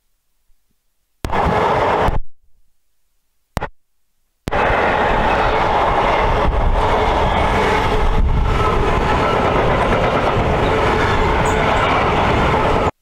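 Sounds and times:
freight train wagons rumbling: 4.5s - 13.0s.

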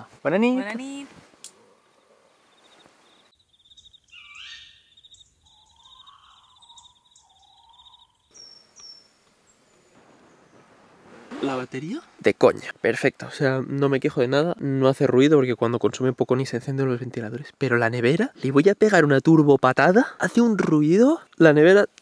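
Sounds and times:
bird calls with gliding notes: 1.6s - 10.7s.

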